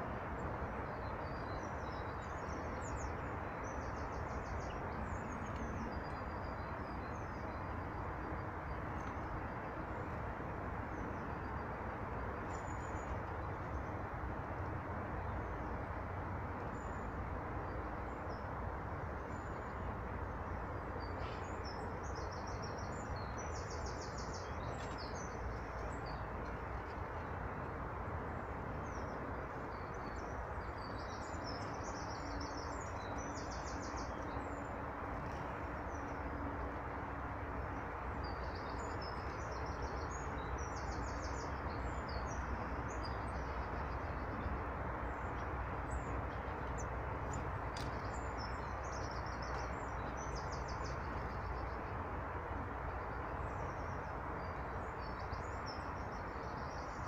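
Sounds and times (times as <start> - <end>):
songbirds trilling: 37.7 - 57.0.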